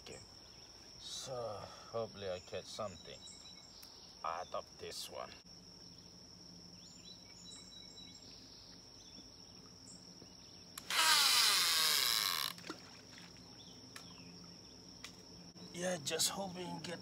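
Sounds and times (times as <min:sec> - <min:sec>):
crickets chirring: 0:00.0 - 0:17.0
fishing reel whirring: 0:10.8 - 0:12.6.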